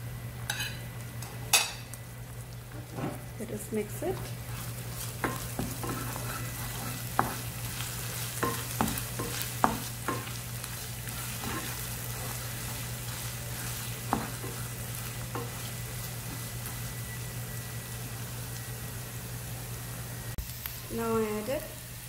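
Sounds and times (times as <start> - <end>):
onions sizzling in oil: 0.0 - 22.0
spatula scraping a pan: 4.2 - 16.5.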